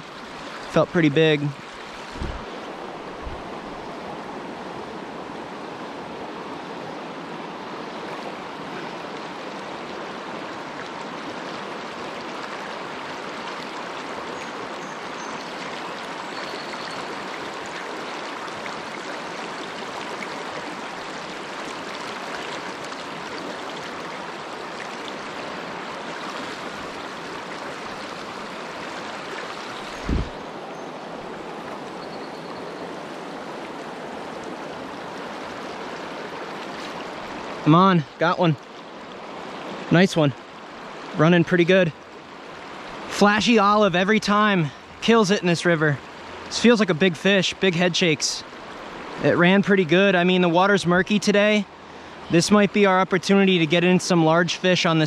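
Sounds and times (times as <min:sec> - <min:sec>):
river rushing over rocks: 0:00.0 - 0:32.0
dull thump: 0:02.1 - 0:02.5, 0:30.0 - 0:30.4.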